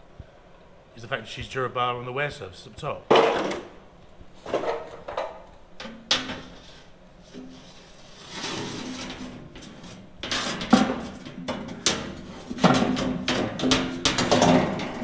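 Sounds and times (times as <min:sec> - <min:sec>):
metal clanks and knocks: 0:04.5 - 0:06.6, 0:08.7 - 0:15.0
metal sheet scraping: 0:06.4 - 0:15.0.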